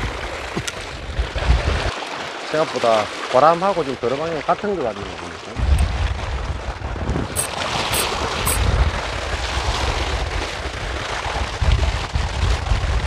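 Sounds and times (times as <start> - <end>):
small sea waves: 0.0 - 8.2
wind buffeting microphone: 5.6 - 13.0
short high clicks: 7.4 - 8.6.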